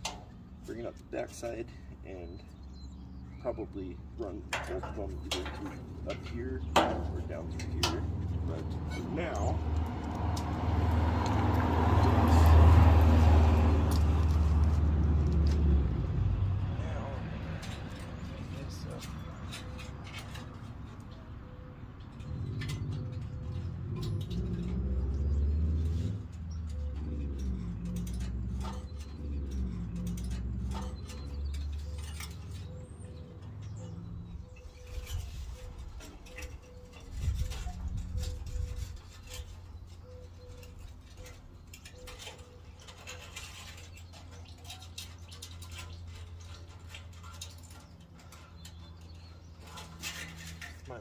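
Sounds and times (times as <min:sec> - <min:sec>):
wire clicks and rustles: 0:03.4 - 0:51.0
dove cooing: 0:31.8 - 0:43.2.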